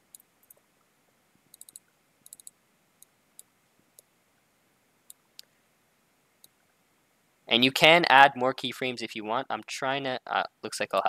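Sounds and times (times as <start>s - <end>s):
computer mouse clicking: 0.0s - 0.6s, 1.5s - 4.1s
faint room hiss: 0.0s - 11.0s.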